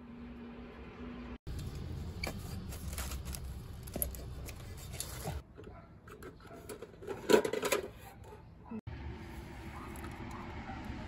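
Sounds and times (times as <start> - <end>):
tools clattering: 3.9 - 8.4.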